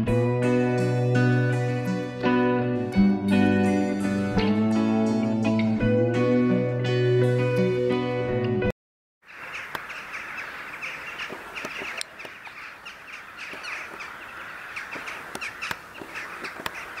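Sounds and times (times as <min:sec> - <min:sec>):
flock of birds calling: 0:09.3 - 0:17.0.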